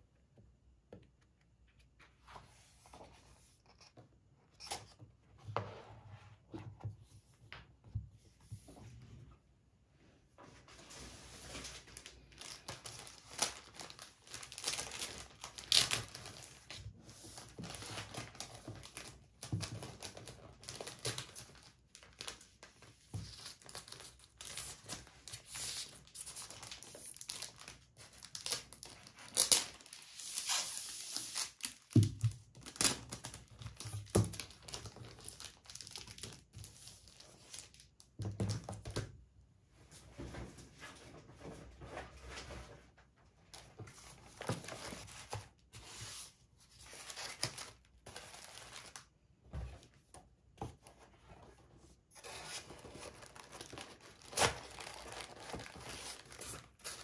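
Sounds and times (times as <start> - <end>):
plastic sleeve crinkling: 11.9 - 16.5, 52.7 - 57.0.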